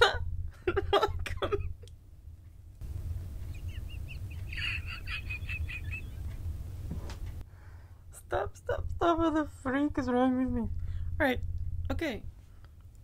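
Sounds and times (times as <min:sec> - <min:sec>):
woman giggling stifled: 0:00.0 - 0:01.9, 0:03.4 - 0:06.3
woman laughing: 0:00.0 - 0:01.9, 0:03.4 - 0:06.3.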